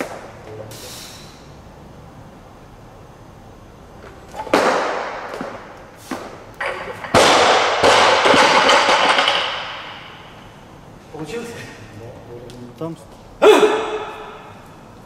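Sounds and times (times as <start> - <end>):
barbell jerk stamp and clatter: 6.2 - 10.2
plates bouncing and rattling: 6.6 - 10.1
barbell crashing onto platform: 6.6 - 10.2.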